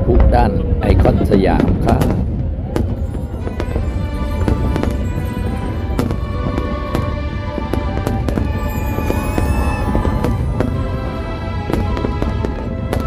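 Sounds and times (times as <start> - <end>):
low rumble: 0.0 - 13.0
firework shells bursting: 2.0 - 13.0
loud music: 2.8 - 13.0.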